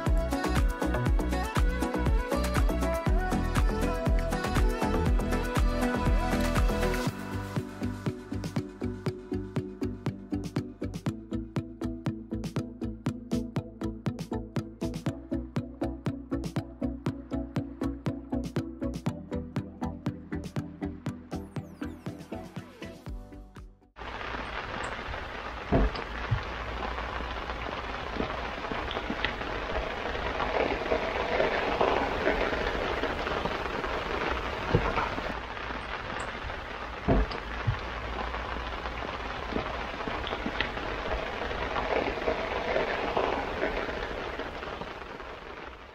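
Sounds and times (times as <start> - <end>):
rain patter on boat: 0.0 - 7.2, 24.0 - 45.9.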